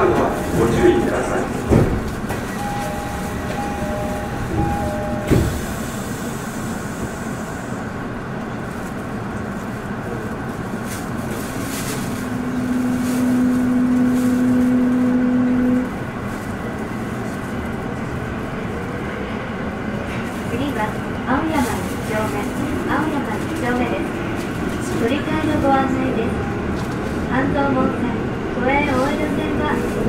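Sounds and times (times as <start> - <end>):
subway car rumble: 0.0 - 30.0
two-tone door chime: 2.6 - 5.6.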